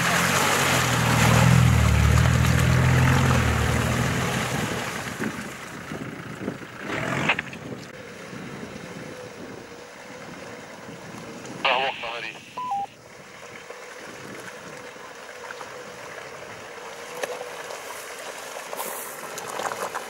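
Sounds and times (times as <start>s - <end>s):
off-road vehicle engine under load: 0.0s - 11.6s
tyres through mud: 0.0s - 20.0s.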